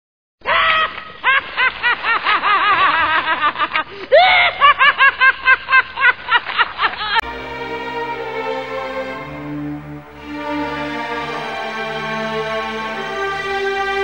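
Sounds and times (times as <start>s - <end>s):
maniacal cackling laughter: 0.6s - 7.2s.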